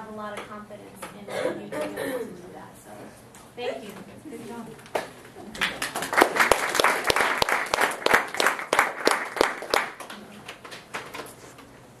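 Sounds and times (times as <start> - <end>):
small audience applauding: 5.0 - 11.3.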